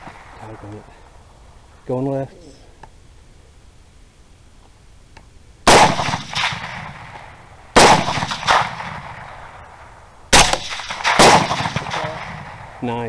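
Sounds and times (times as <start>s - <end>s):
suppressed rifle shots: 5.7s - 12.8s.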